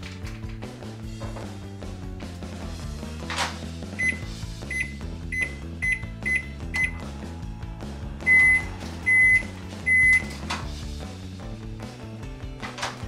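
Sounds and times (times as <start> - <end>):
background music: 0.0 - 13.0
microwave oven beeps: 4.0 - 7.0, 8.2 - 10.3.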